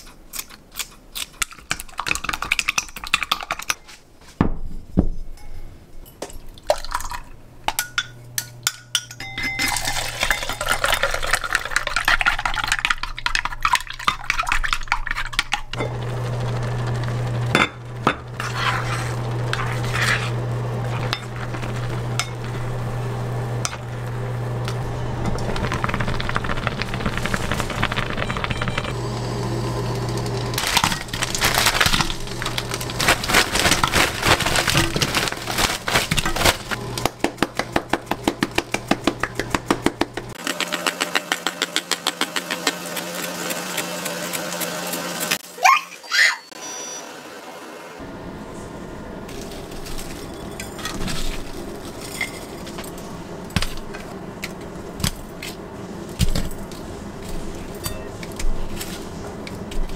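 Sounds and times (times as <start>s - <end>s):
induction hob humming: 7.0s - 11.1s, 15.7s - 45.6s, 46.5s - 59.9s
plastic bag crinkling: 25.2s - 28.9s, 30.5s - 36.9s.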